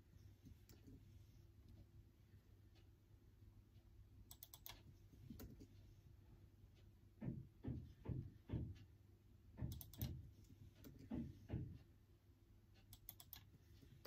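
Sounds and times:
laptop keyboard typing: 4.3s - 5.7s, 9.6s - 11.8s, 12.8s - 14.0s.

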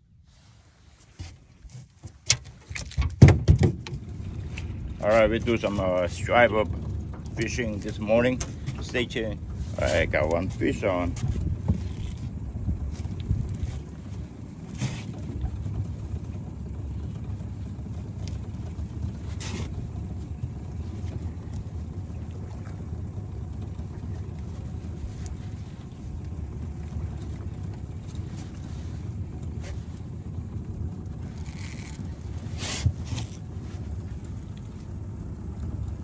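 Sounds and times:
boat motor rumbling: 0.0s - 36.0s
short hissing scrapes: 32.5s - 33.3s.

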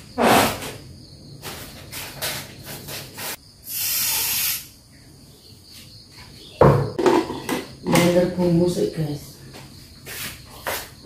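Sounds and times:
short hiss: 3.2s - 4.8s.

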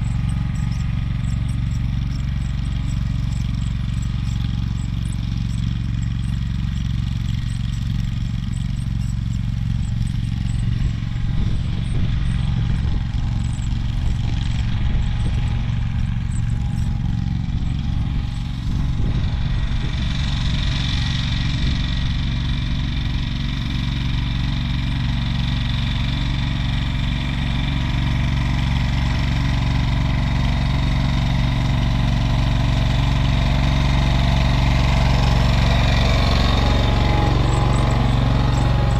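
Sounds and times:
garden tractor engine running: 0.0s - 38.9s.

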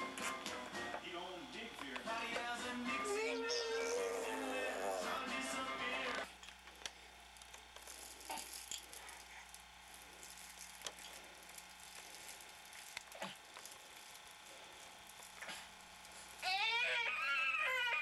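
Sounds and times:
music with voices: 0.0s - 6.3s
steady low hum: 0.0s - 18.0s
faint clicks and rustles: 6.2s - 16.5s.

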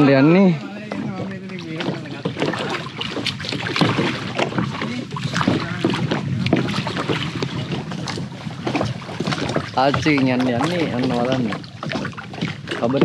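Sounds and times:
paddles splashing water: 0.0s - 13.0s.

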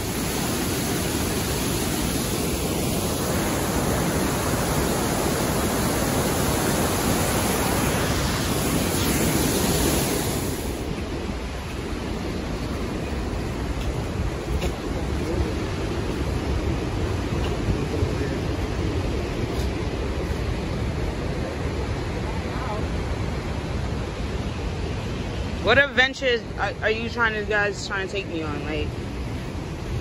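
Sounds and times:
waterfall and rapids roaring: 0.0s - 30.0s.

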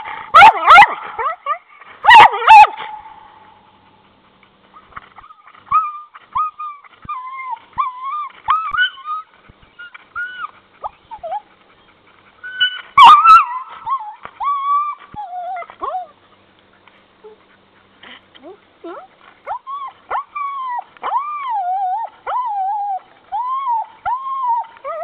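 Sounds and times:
dog yelping: 0.4s - 3.1s, 5.2s - 11.4s, 12.5s - 16.1s
dog whining: 5.2s - 11.4s, 18.9s - 25.0s.

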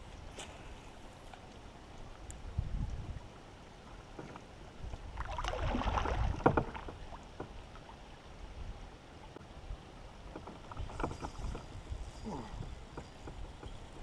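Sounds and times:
kayak paddle stroking water: 0.2s - 8.4s
paddle knocking against kayak hull: 6.0s - 7.6s.

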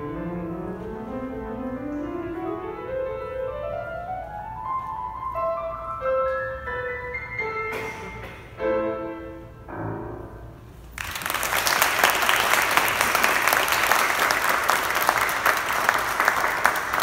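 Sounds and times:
grand piano chords: 0.0s - 17.0s
audience applause: 11.0s - 17.0s.

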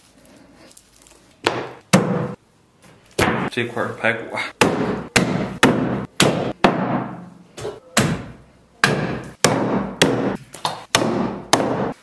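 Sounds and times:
cleaver chopping ribs on wood: 8.8s - 12.0s.

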